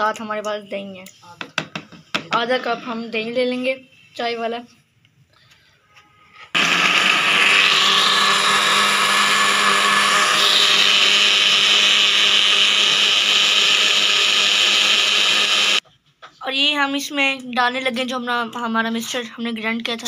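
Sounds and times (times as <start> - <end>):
electric blender grinding: 6.6 - 15.8.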